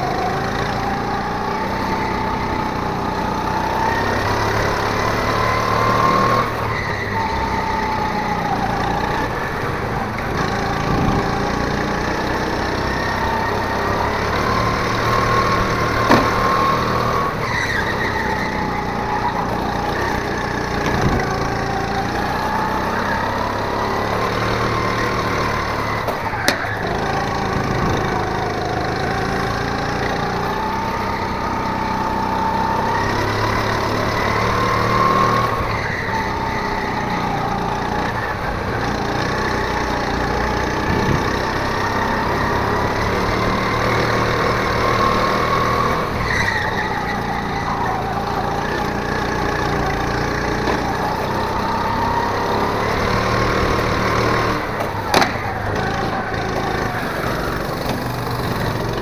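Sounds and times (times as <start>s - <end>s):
go-kart engine revving: 0.0s - 59.0s
sharp knocks: 16.0s - 16.8s.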